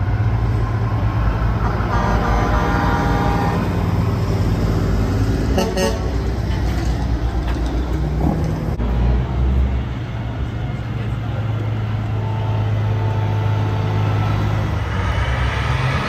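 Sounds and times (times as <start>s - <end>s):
truck diesel engines rumbling: 0.0s - 16.0s
truck horn blasts: 1.6s - 3.9s, 5.5s - 6.3s.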